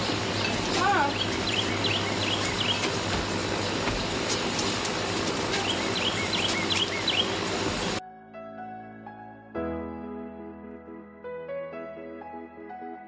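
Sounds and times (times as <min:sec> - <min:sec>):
bird chirping: 0:00.4 - 0:04.5, 0:05.4 - 0:07.6.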